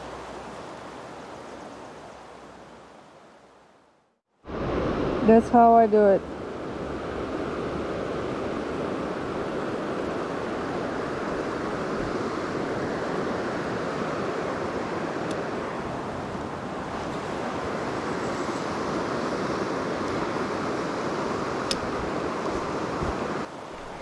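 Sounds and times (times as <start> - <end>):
river flowing over gravel: 0.0 - 3.5.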